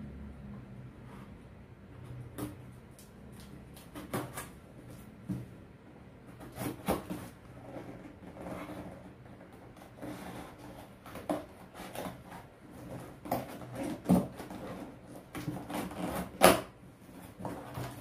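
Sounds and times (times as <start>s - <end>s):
scissors cutting packing tape: 11.0s - 16.7s.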